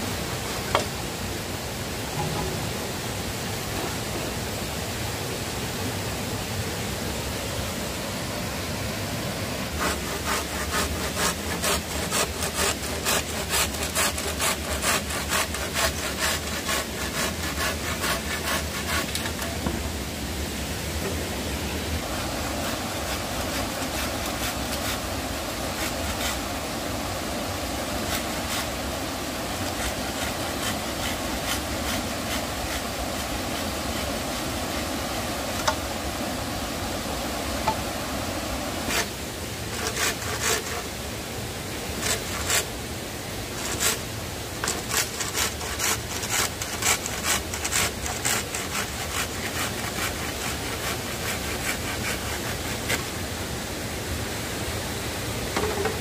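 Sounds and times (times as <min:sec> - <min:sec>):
handsaw sawing through bamboo: 0:09.7 - 0:19.8, 0:22.0 - 0:35.8, 0:38.8 - 0:41.0, 0:41.9 - 0:42.7, 0:43.5 - 0:53.2.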